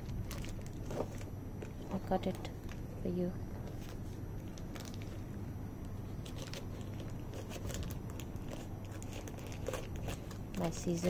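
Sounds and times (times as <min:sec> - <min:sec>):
plastic mailer crinkling: 0:00.0 - 0:03.0, 0:03.6 - 0:11.0
scissors cutting plastic: 0:06.2 - 0:11.0.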